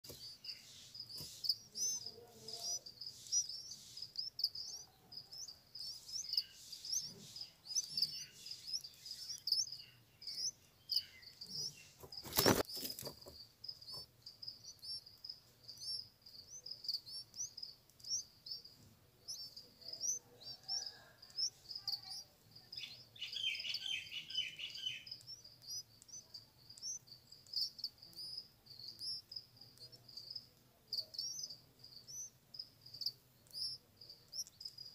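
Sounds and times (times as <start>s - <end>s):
nestlings cheeping: 0.0s - 34.9s.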